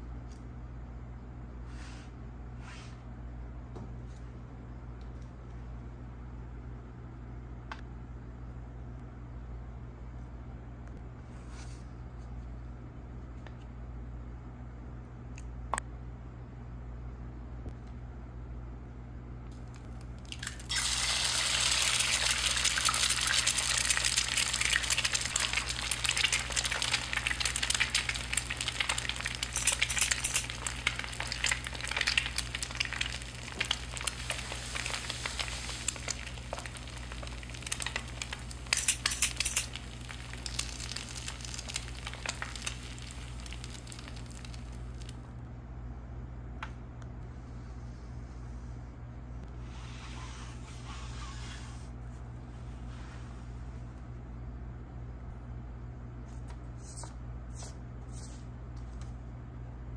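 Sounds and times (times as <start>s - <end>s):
egg sizzling in a pan: 20.3s - 45.2s.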